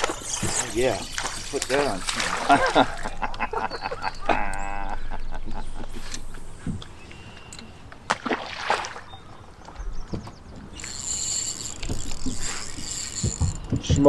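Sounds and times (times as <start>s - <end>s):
water sloshing at a hull: 0.0s - 4.1s, 7.7s - 10.8s.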